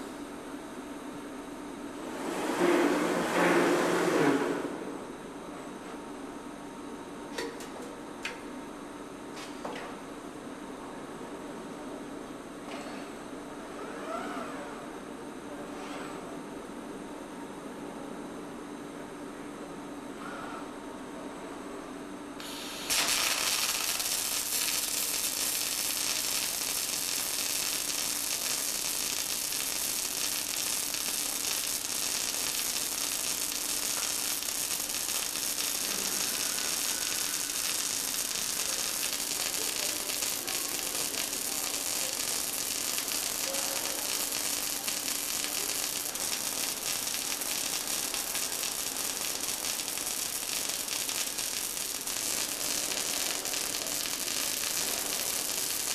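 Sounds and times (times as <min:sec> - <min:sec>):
faint steady hum: 0:16.4 - 0:55.9
welding arc crackling and sizzling: 0:22.4 - 0:55.9.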